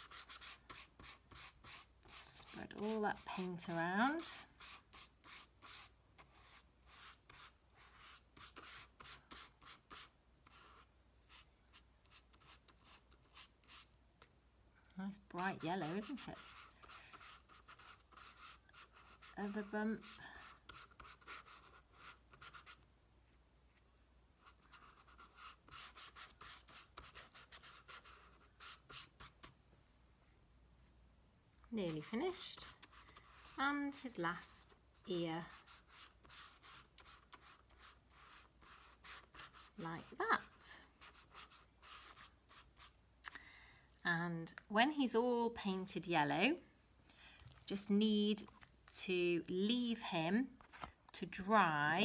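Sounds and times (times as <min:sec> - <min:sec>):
paintbrush brushing on paper: 0:00.0 - 0:13.9, 0:15.2 - 0:23.8, 0:24.4 - 0:29.6, 0:31.8 - 0:43.0.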